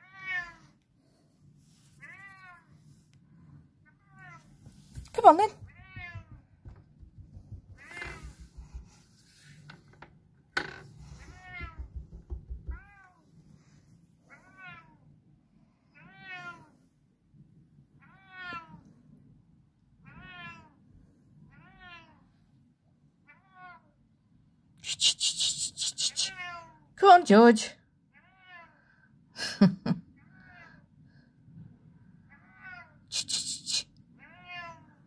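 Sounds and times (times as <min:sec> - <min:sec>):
cat meowing: 0:00.0 - 0:00.7, 0:05.4 - 0:06.4, 0:11.2 - 0:11.9, 0:16.0 - 0:16.7, 0:18.0 - 0:18.9, 0:20.0 - 0:20.8, 0:21.5 - 0:22.2, 0:23.3 - 0:24.0, 0:26.2 - 0:26.8, 0:32.3 - 0:33.0, 0:34.2 - 0:35.0.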